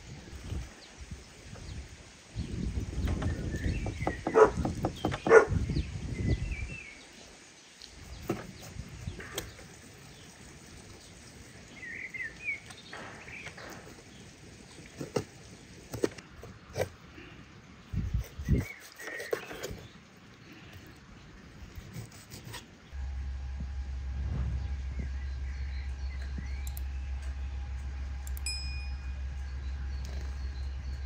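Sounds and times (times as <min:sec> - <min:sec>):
birds chirping: 0:00.8 - 0:16.3, 0:22.8 - 0:31.0.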